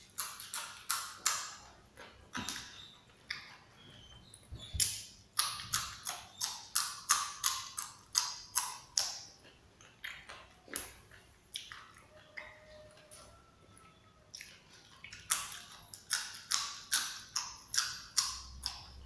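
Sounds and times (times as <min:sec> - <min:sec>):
crisp crunches of chewing beans: 0:14.3 - 0:19.0.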